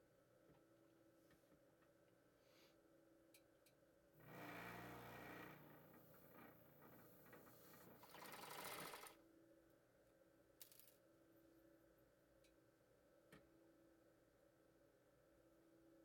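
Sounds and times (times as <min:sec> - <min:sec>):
sewing machine stitching: 0:04.2 - 0:09.2.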